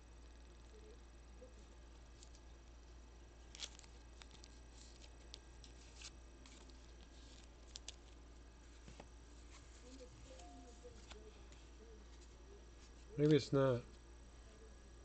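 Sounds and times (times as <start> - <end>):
steady low hum: 0.0 - 15.0
cards and packaging rustling: 3.4 - 13.5.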